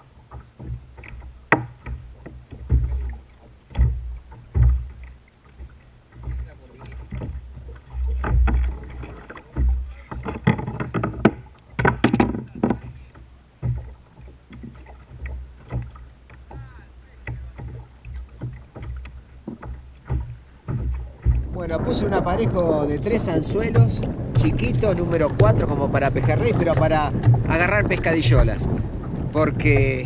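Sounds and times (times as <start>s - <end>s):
water lapping against kayak hull: 0.0s - 30.0s
knocks and clatter from handling: 0.3s - 21.6s.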